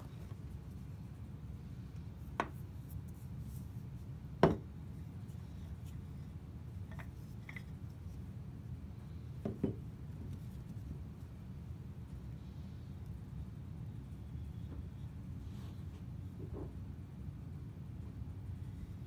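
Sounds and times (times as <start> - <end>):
steady low hum: 0.0 - 19.0
wooden mallet knocking on workbench: 4.4 - 4.6.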